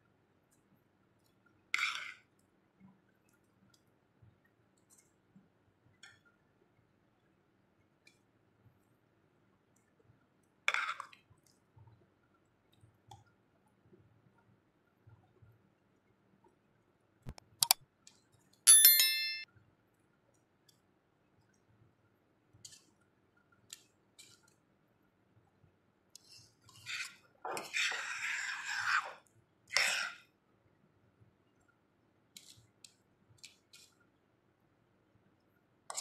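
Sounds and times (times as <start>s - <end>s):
sharp click: 17.3s - 17.8s
metal spoon clinking on dish: 18.7s - 19.5s.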